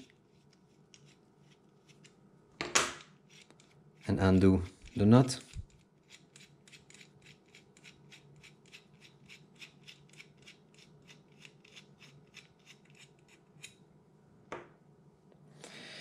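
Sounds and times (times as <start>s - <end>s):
nut unscrewing small clicks: 4.8s - 13.8s.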